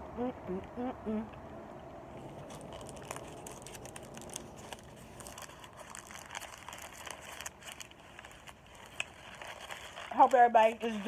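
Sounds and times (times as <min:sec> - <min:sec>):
paper wrapper crinkling: 0:02.2 - 0:11.0.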